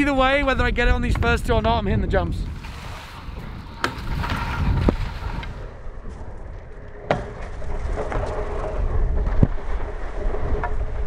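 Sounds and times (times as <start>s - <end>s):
skis running over snow: 2.5s - 6.8s, 7.4s - 11.0s.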